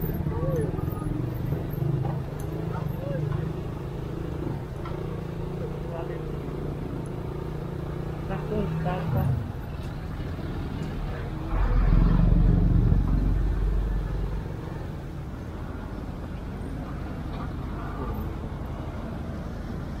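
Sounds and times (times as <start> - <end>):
motorcycle engine: 0.0 - 15.4
road noise: 0.0 - 20.0
low rumble: 11.1 - 14.9.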